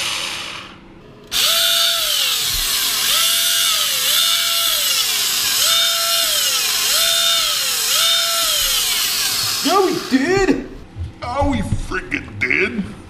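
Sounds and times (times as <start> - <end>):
electric motor whine: 1.3 - 10.4.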